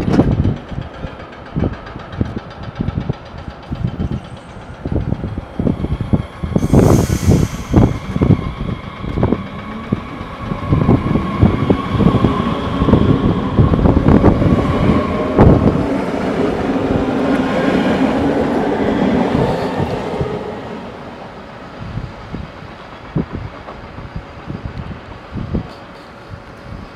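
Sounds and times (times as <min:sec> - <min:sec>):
train wheels clicking on rails: 0:00.0 - 0:26.9
electric train motors whining: 0:04.2 - 0:18.7.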